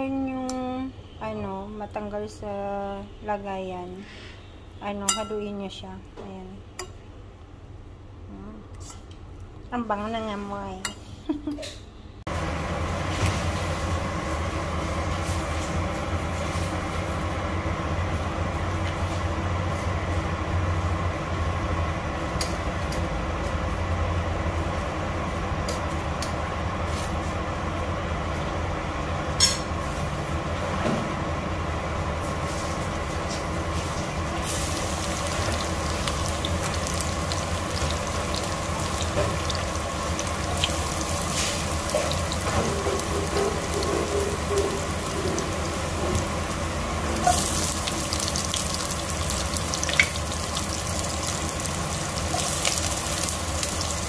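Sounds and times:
garlic and onion sizzling in oil: 12.3s - 54.0s.

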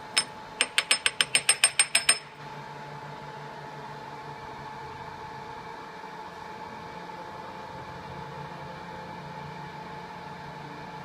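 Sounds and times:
metallic clicks of steel part: 0.0s - 2.4s
ringing metal clicks: 0.0s - 2.4s.

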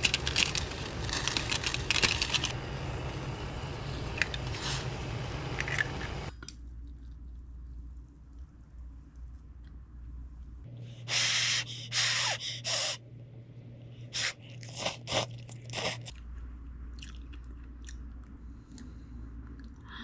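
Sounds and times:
person slurping noodles: 14.2s - 16.1s
chewing: 14.4s - 19.8s.

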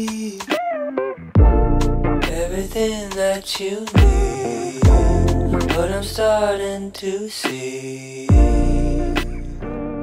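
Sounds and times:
person singing: 0.0s - 1.6s, 2.2s - 10.0s
deep bass beat: 1.4s - 6.4s, 8.3s - 9.7s.

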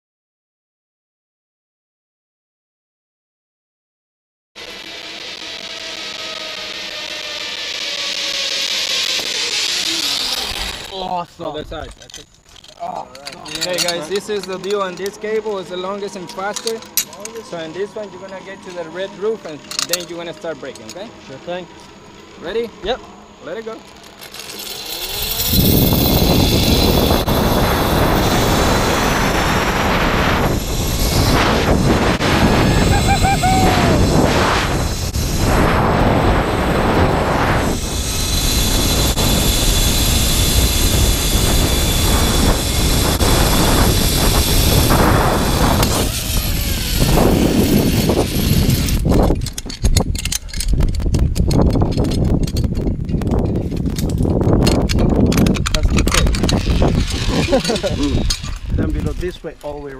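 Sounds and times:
zip-line pulleys running on cable: 4.6s - 11.2s, 13.4s - 52.9s, 53.6s - 59.8s
wind rushing over microphone: 25.0s - 59.8s.

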